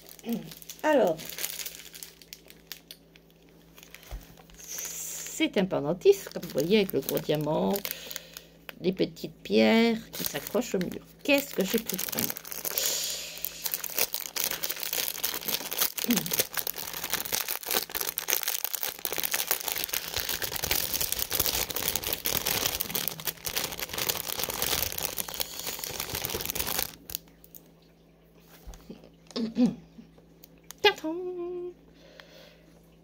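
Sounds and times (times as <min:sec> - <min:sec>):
plastic bag crinkling: 0:00.0 - 0:08.9, 0:09.6 - 0:27.6.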